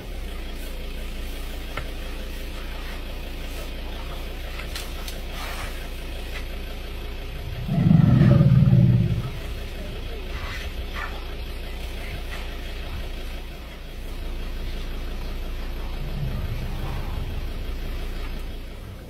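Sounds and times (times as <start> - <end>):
vehicle engine idling: 0.0 - 19.0
loud low-pitched sound: 7.4 - 9.8, 15.6 - 18.3.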